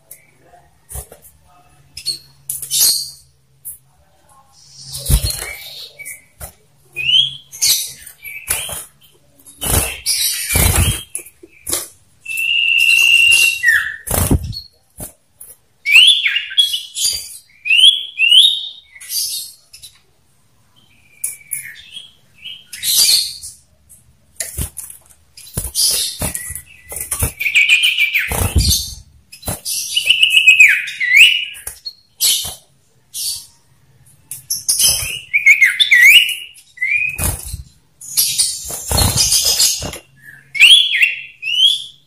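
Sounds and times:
bird wings fluttering: 10.6 - 11.1, 14.1 - 15.1, 28.3 - 29.7
bird whistles: 12.3 - 14.0.

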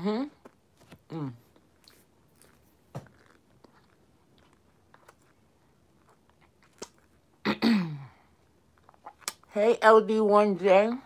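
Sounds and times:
chewing and crunching: 1.4 - 7.4, 8.3 - 9.5.

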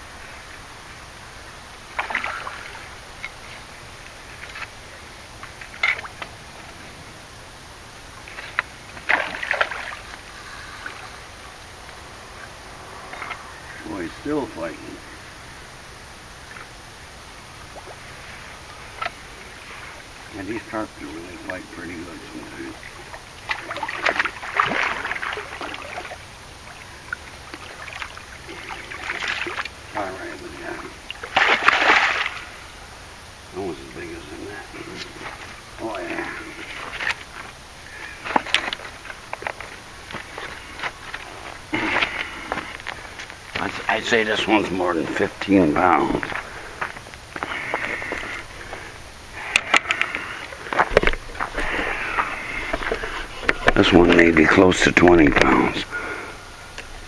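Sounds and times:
water splashing and sloshing: 0.1 - 15.1, 16.3 - 34.0, 34.6 - 56.2
fish splashing at water surface: 1.9 - 3.0, 8.2 - 11.1, 22.7 - 29.8, 31.1 - 32.7.

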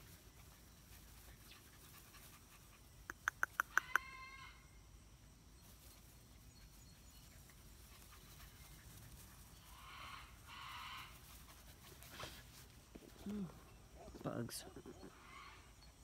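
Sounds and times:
hissy rustles: 0.0 - 3.1, 5.6 - 13.9
faint outdoor ambience: 0.0 - 16.0.

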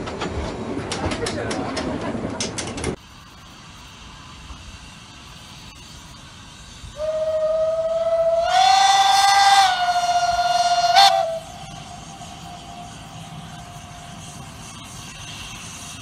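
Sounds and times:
steam locomotive whistle: 6.9 - 14.1.

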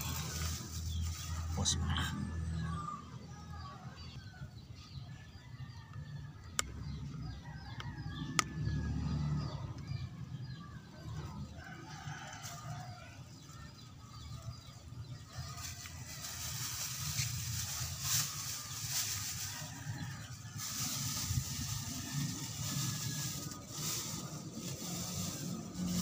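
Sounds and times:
plastic bag crinkling: 0.0 - 1.6, 15.3 - 26.0.

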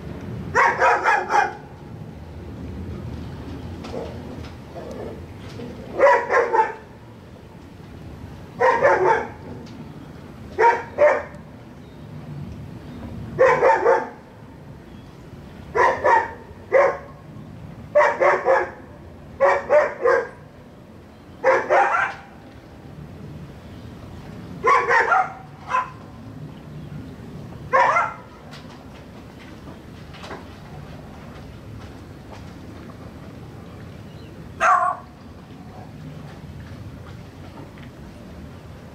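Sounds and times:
dog barking: 0.6 - 1.6, 6.0 - 6.8, 8.6 - 9.4, 10.6 - 11.3, 13.4 - 14.2, 15.8 - 17.1, 18.0 - 18.8, 19.4 - 20.4, 21.4 - 22.2, 24.6 - 26.0, 27.7 - 28.2, 34.6 - 35.1.

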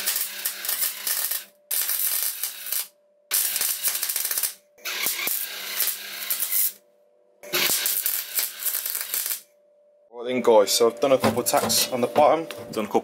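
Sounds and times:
faint welder hum: 0.0 - 6.8, 7.4 - 9.6
welding arc crackling: 0.0 - 6.8, 7.4 - 9.4.

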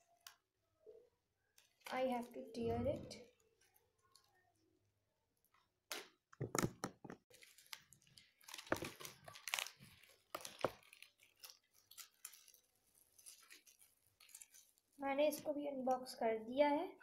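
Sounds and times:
packaging tearing and crinkling: 7.3 - 15.0.

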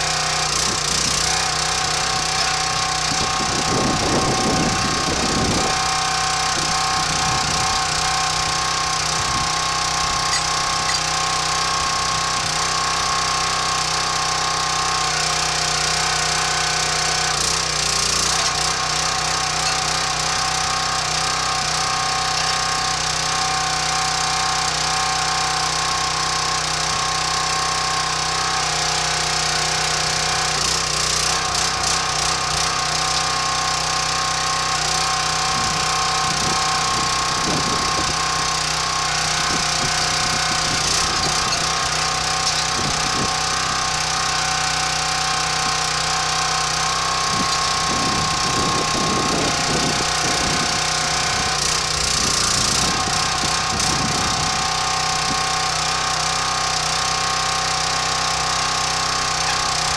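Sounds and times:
small gas engine running: 0.0 - 59.9
chain and metal clatter: 0.6 - 11.4, 16.5 - 23.2, 39.4 - 43.8, 47.1 - 54.2.

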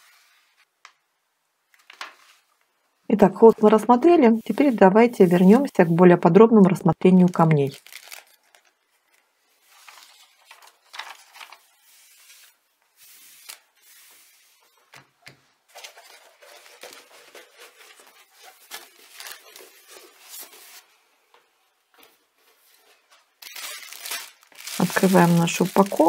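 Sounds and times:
plastic film rustling and crinkling: 3.3 - 14.9, 15.7 - 21.0, 22.5 - 26.0.

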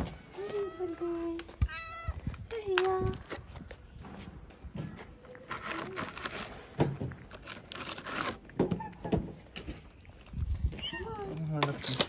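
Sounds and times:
rustling: 2.2 - 8.6
cat chewing and crunching food: 5.3 - 8.6.

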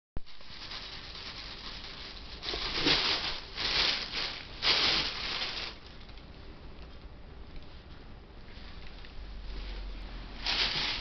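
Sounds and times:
sack rustling and crinkling: 0.3 - 5.8, 9.8 - 11.0.

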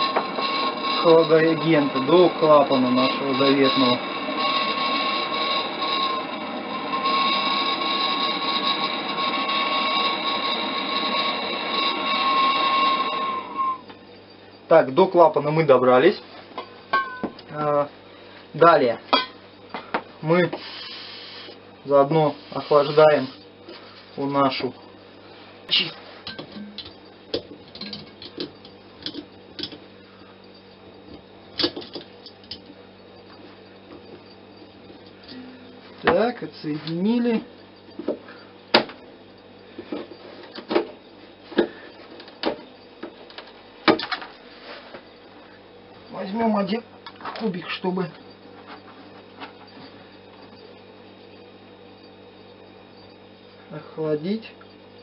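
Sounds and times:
gas torch hissing and whistling: 0.0 - 15.2, 19.7 - 26.8
low steady hum: 0.0 - 55.0.

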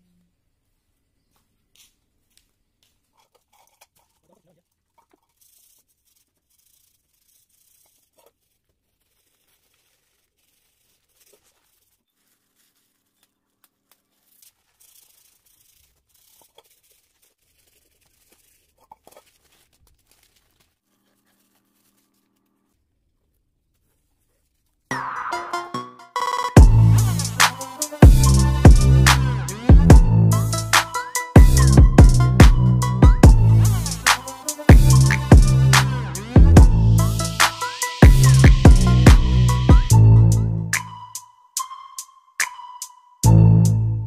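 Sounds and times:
masking paper and tape tearing: 1.3 - 24.9, 26.8 - 31.8, 33.4 - 36.4.

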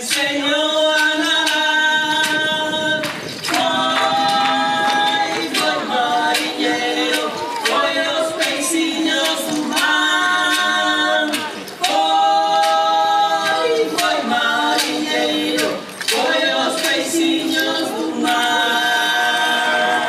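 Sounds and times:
voices singing a cappella: 0.0 - 20.0
sharp percussive hits: 0.1 - 18.6.

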